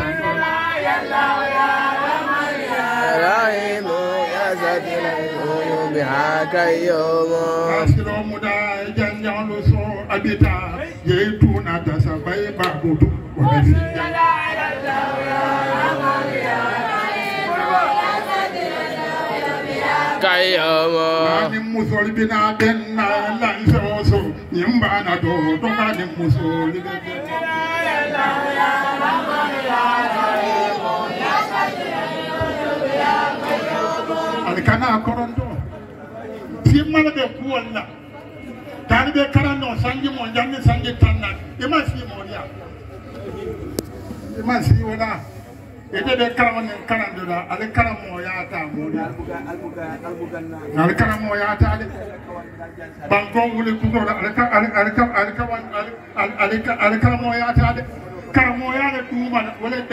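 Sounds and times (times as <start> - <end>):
man chanting into a microphone: 5.4 - 14.8, 20.2 - 27.2
man speaking into a microphone: 7.7 - 14.0, 20.2 - 26.9, 36.5 - 38.0, 38.8 - 59.9.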